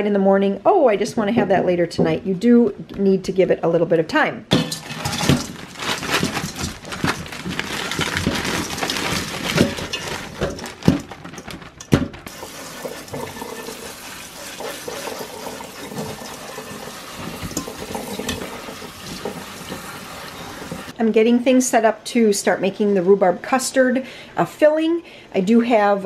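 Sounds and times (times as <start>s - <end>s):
frozen pieces clicking into colander: 4.5s - 12.4s
faucet sprayer running water: 12.3s - 20.9s.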